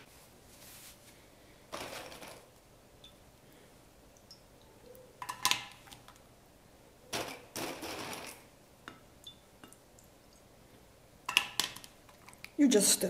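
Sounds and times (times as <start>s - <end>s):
scraping rustle: 0.0s - 1.2s.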